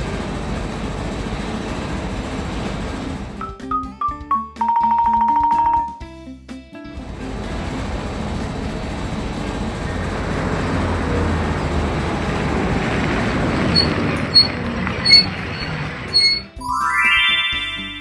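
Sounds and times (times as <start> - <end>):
cartoon conveyor belt rumble: 0.0 - 5.8, 7.0 - 18.0
rising chime: 16.2 - 18.0.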